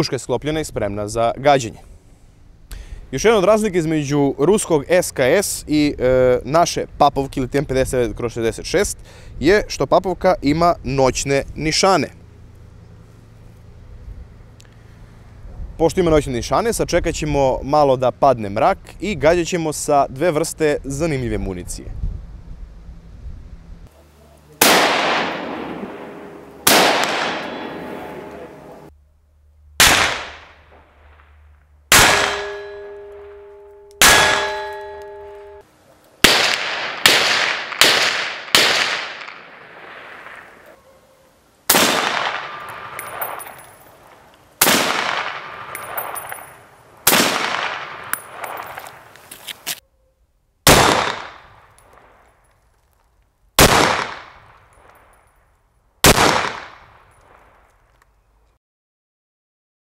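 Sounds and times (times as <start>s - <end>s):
rifle shots: 24.6s - 28.9s, 29.8s - 35.4s, 36.2s - 40.6s, 41.7s - 43.6s, 44.6s - 46.4s, 47.0s - 49.1s, 50.7s - 52.2s, 53.6s - 54.6s, 56.0s - 57.6s
ringing of struck steel targets: 24.6s - 28.9s, 31.9s - 35.7s, 42.2s - 44.0s, 45.1s - 46.7s.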